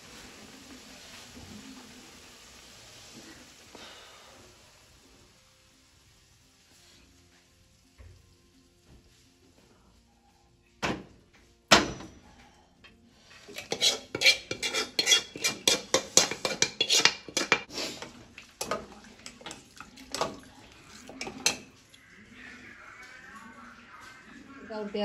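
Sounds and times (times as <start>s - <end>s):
ladle clinking and scraping in pot: 13.3s - 21.8s.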